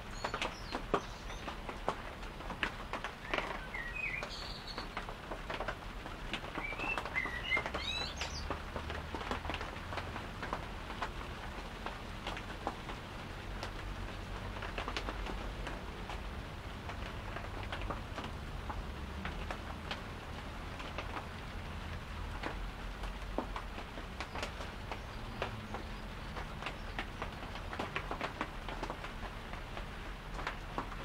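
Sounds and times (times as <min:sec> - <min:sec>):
small birds chirping: 0:00.0 - 0:01.6, 0:03.2 - 0:05.1, 0:06.5 - 0:08.6, 0:24.2 - 0:27.3.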